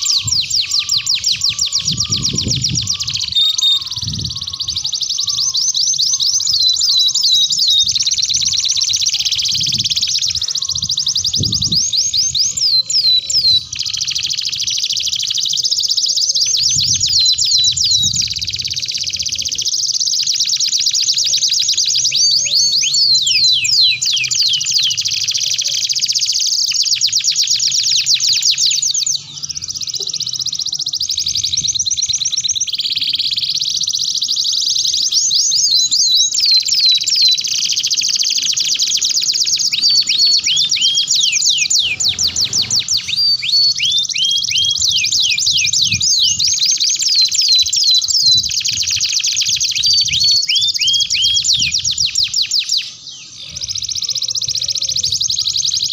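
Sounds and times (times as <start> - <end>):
canaries singing trills: 0.0 - 55.9.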